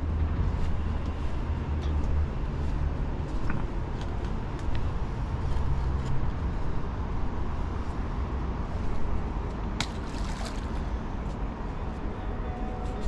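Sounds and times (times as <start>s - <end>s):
water sloshing and trickling: 9.8s - 10.9s.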